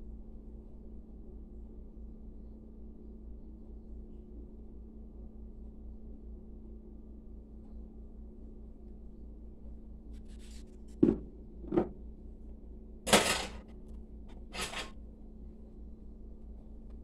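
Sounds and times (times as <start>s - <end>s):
dull knocks: 11.0s - 11.9s
scraping rustles: 14.3s - 14.9s.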